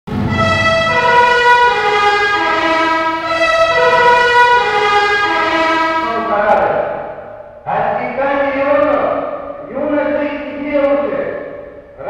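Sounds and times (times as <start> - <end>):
brass band playing held chords: 0.1 - 6.7.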